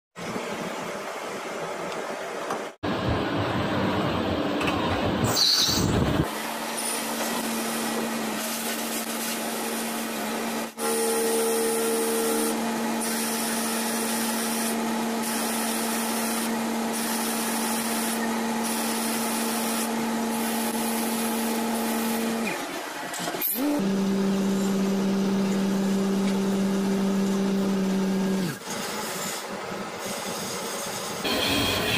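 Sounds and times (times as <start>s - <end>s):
higher machine tone: 10.8s - 13.2s, 31.2s - 31.9s.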